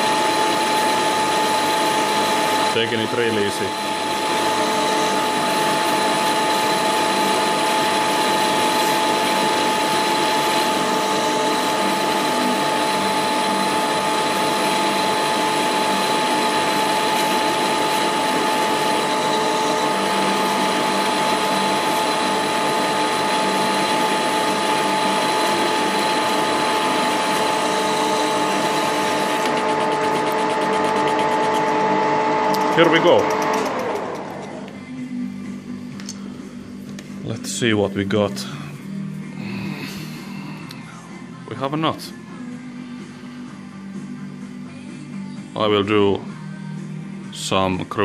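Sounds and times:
metal lathe whining: 0:00.0 - 0:36.2.

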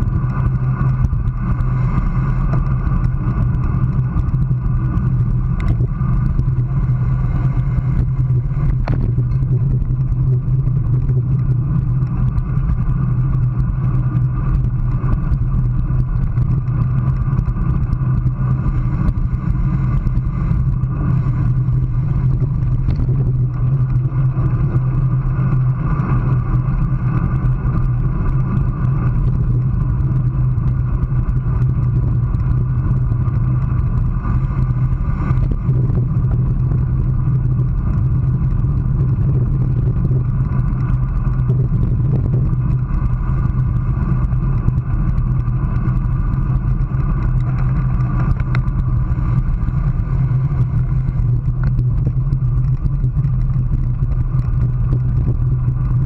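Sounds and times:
low drone: 0:00.0 - 0:56.0
road rumble: 0:00.0 - 0:56.0
faint clicks: 0:46.6 - 0:49.8.

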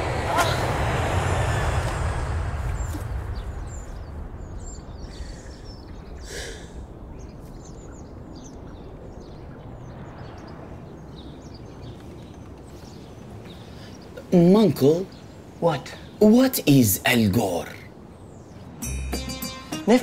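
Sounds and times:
aeroplane rumble overhead: 0:00.0 - 0:14.0
small birds chirping: 0:00.0 - 0:20.0.

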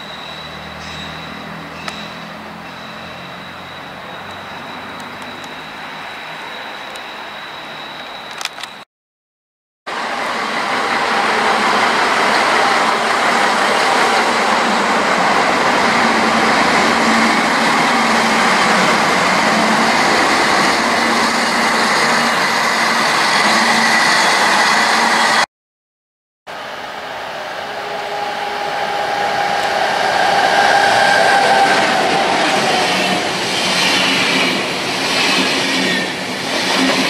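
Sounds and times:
diesel railcar engine drone: 0:00.0 - 0:08.8, 0:09.9 - 0:25.4, 0:26.5 - 0:37.0.

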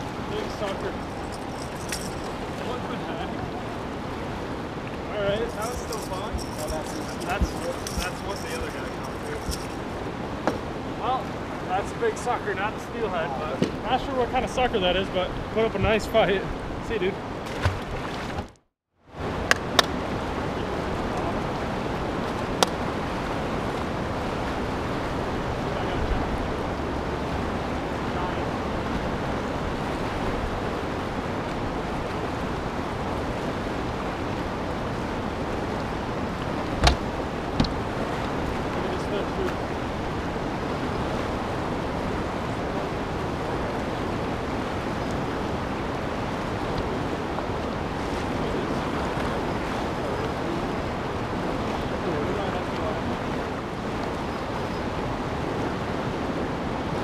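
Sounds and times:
wind buffeting microphone: 0:00.0 - 0:11.5
fast-flowing river water: 0:00.0 - 0:11.8, 0:19.2 - 0:57.0
wind: 0:00.0 - 0:57.0.

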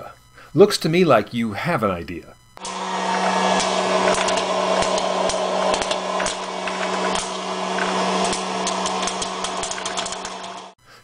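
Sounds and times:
popcorn kernels popping: 0:02.6 - 0:10.7
popcorn popper fan humming: 0:02.6 - 0:10.8.

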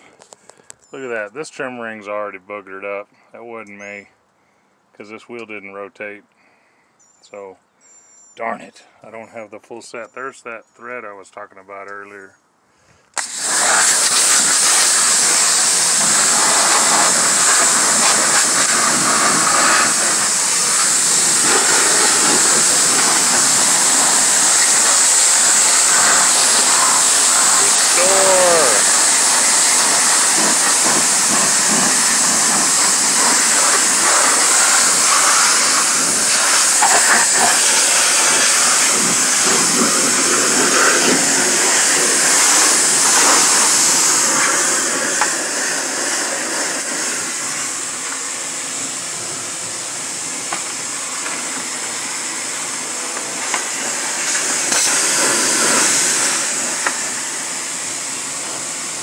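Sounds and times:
pressure washer spraying water: 0:13.2 - 0:59.0.

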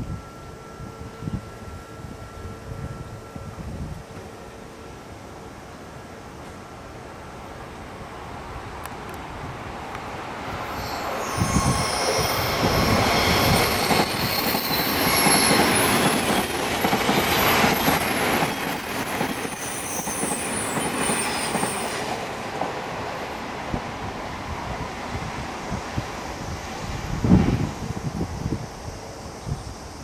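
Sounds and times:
train wheels rumbling on rail: 0:08.6 - 0:30.0
thin high squealing: 0:10.6 - 0:22.0.

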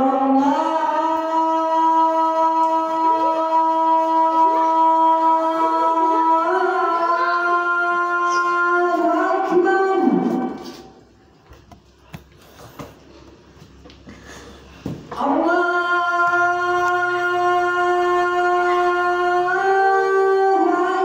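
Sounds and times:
man chanting call to prayer: 0:00.0 - 0:10.8, 0:15.1 - 0:21.0.

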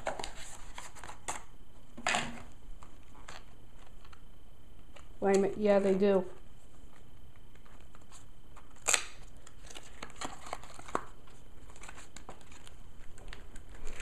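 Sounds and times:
paper packaging rustling: 0:00.0 - 0:01.5, 0:06.8 - 0:14.0.

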